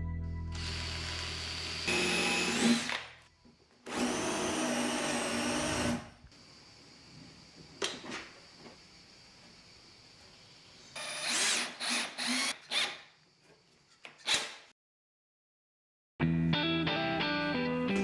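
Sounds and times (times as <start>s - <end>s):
cordless drill boring into wood: 0.6s - 3.1s, 3.9s - 6.1s, 11.0s - 13.0s.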